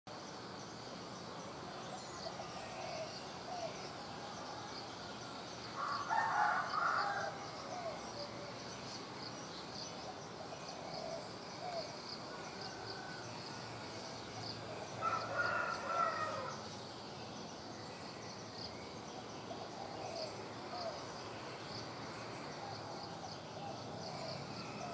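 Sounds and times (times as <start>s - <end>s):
rooster crowing: 5.8s - 7.6s, 15.0s - 16.6s.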